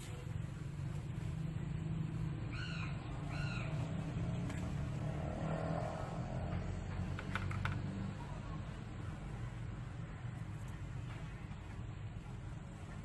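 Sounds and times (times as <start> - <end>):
animal calls: 2.4 - 4.4.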